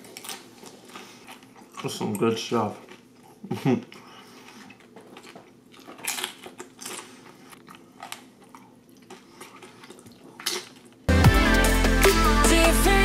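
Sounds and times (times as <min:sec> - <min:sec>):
crunching tortilla chips: 0:00.0 - 0:03.2, 0:04.4 - 0:11.1
quiet chewing: 0:00.0 - 0:11.1.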